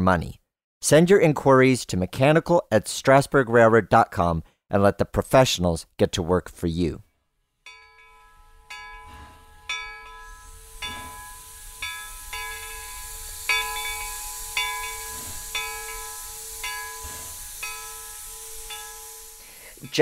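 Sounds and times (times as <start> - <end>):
locomotive bell ringing: 7.7 - 20.0
hissing steam: 7.8 - 20.0.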